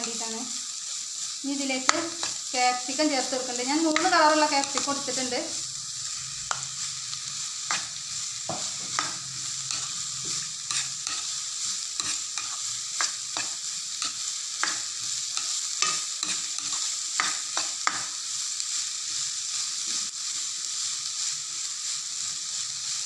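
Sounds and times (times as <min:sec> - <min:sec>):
vegetables sizzling in a wok: 0:00.0 - 0:23.0
spatula scraping and tapping a pan: 0:01.8 - 0:02.4, 0:03.9 - 0:05.0, 0:06.5 - 0:06.8, 0:07.7 - 0:11.4, 0:12.0 - 0:18.2.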